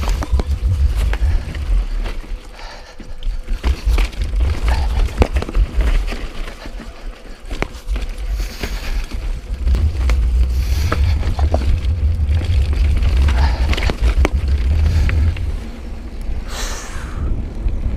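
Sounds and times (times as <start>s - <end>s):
wind rumble on microphone: 0.0s - 2.4s, 8.2s - 17.9s
bike tyres clattering over stones: 0.0s - 16.3s
bike rattling: 0.0s - 17.9s.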